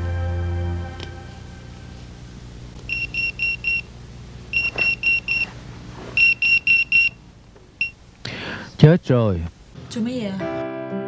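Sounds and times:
phone alert high beeps: 2.9s - 3.9s, 4.6s - 5.5s, 6.2s - 7.2s.

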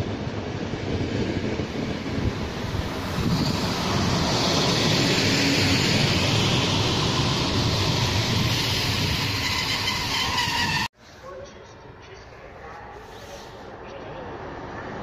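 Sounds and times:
train wheels rumbling on rails: 0.0s - 10.9s.

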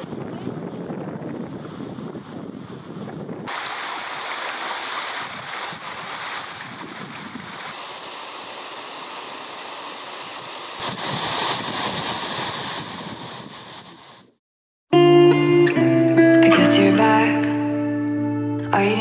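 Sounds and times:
wind buffeting microphone: 0.0s - 3.6s, 5.1s - 7.8s, 10.4s - 14.4s
rushing water: 3.4s - 12.1s.

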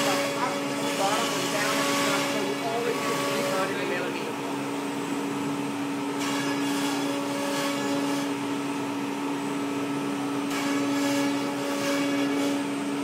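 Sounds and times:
router bit cutting with hiss: 0.0s - 4.0s, 6.1s - 8.5s
dust extraction: 0.0s - 13.0s
router spindle humming: 0.0s - 13.0s.

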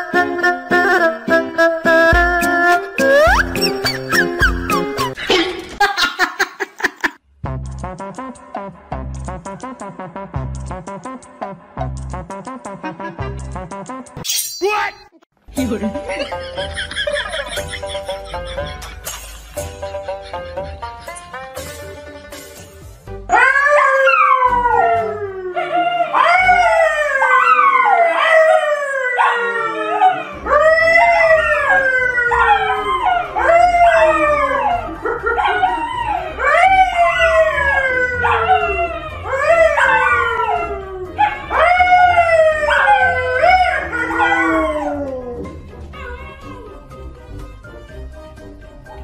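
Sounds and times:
dogs howling: 23.3s - 47.0s
man howling: 29.2s - 46.8s.

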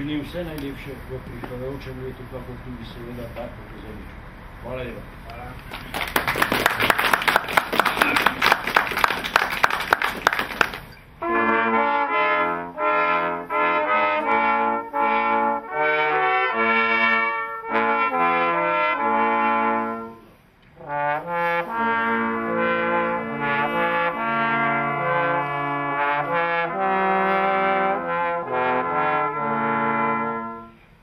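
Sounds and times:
applause: 5.6s - 10.9s
brass quartet playing: 6.2s - 31.0s.

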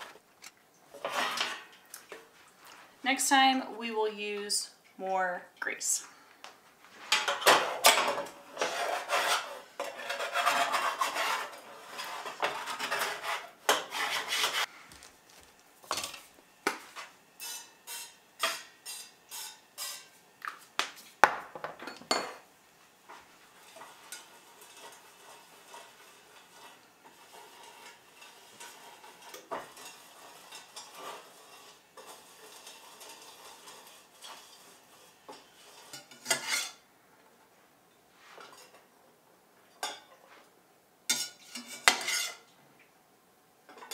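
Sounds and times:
utensil scraping metal tin: 7.9s - 14.7s, 23.6s - 36.8s, 41.1s - 42.5s.

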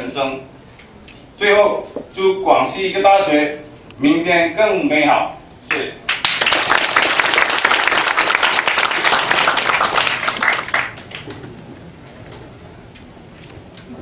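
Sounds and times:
audience applauding: 6.1s - 11.5s.

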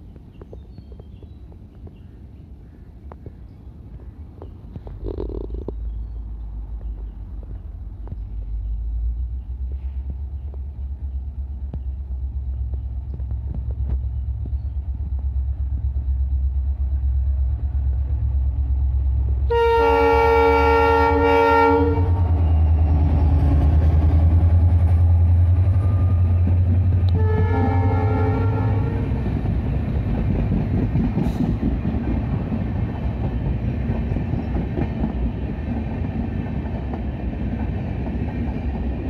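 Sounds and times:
diesel locomotive engine rumble: 0.0s - 39.0s
train wheels on rails: 3.0s - 39.0s
train horn blast: 19.4s - 22.7s, 27.0s - 29.4s.

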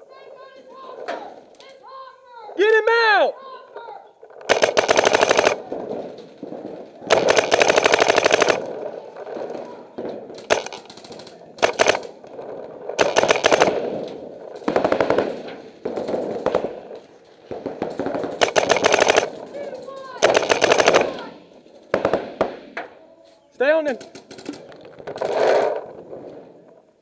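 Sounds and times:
paintball guns firing rapid bursts: 4.3s - 9.7s, 10.3s - 19.6s, 20.2s - 22.6s, 23.9s - 26.4s.

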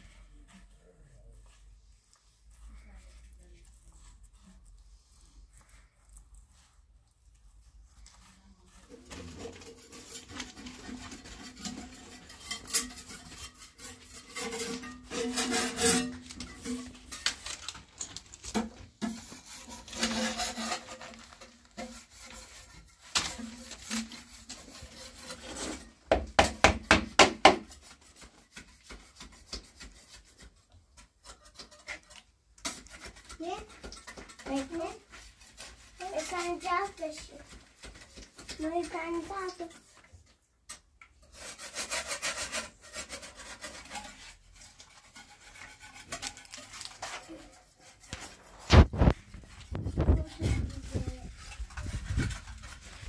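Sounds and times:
hand tool rasping wood: 8.2s - 17.6s, 18.6s - 40.0s, 41.2s - 53.0s.

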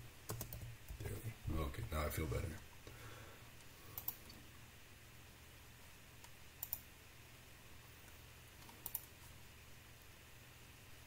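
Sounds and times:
faint low hum: 0.0s - 11.0s
computer mouse double-clicking: 6.2s - 6.8s, 8.6s - 9.1s.

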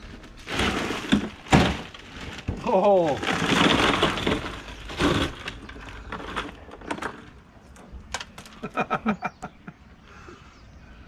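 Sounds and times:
crushed ice crunching: 0.0s - 7.4s
plastic bags rustling: 0.0s - 8.7s.

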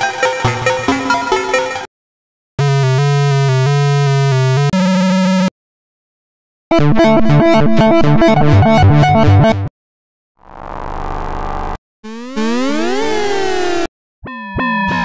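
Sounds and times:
buzzy synthesizer tone: 2.6s - 5.5s, 10.5s - 13.9s.

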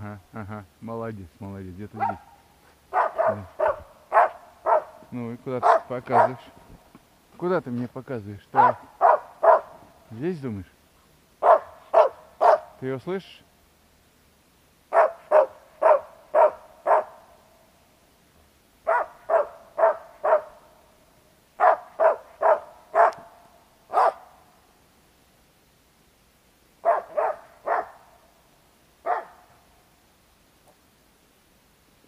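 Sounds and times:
dog barking: 2.0s - 5.0s, 5.6s - 6.5s, 8.6s - 9.8s, 11.4s - 12.7s, 14.9s - 17.2s, 18.8s - 20.6s, 21.6s - 23.3s, 23.9s - 24.4s, 26.8s - 28.0s, 29.0s - 29.5s.

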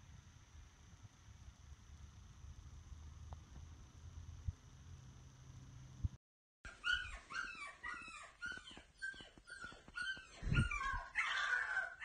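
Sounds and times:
squeaky toy squeaks: 6.7s - 11.9s.

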